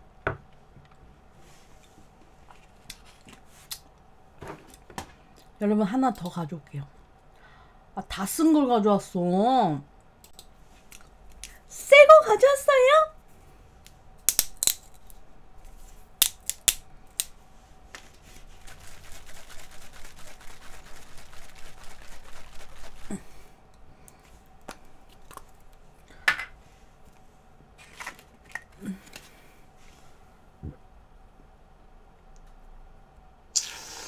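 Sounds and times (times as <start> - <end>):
aerosol can rattling when shaken: 18.4 - 23.2.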